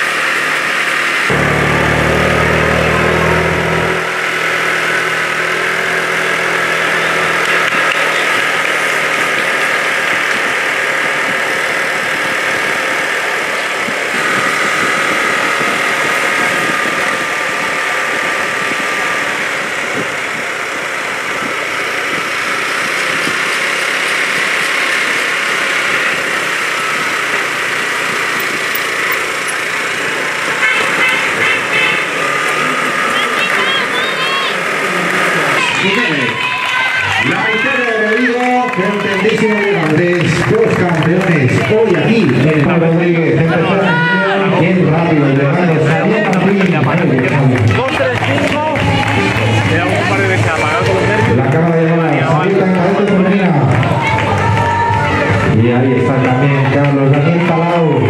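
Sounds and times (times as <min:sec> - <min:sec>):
road noise: 0:00.0 - 0:58.0
vehicle engine running: 0:00.0 - 0:58.0
low hum: 0:01.3 - 0:07.8.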